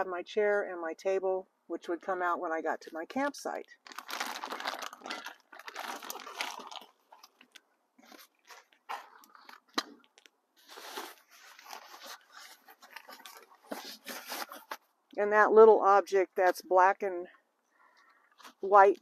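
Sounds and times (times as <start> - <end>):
plastic bags rustling: 3.8 - 14.8.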